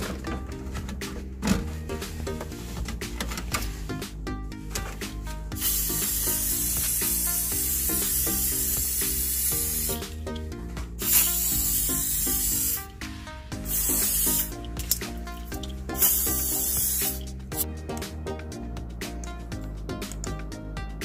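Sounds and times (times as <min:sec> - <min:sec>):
background music: 0:00.0 - 0:21.0
aerosol spray hissing: 0:05.6 - 0:10.2, 0:11.0 - 0:12.9, 0:13.6 - 0:14.5, 0:15.9 - 0:17.3.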